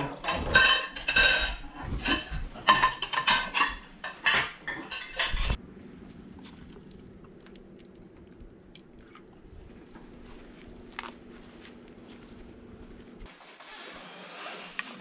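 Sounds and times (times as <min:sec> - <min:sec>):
cutlery and mug clinking on plate: 0:00.0 - 0:05.6.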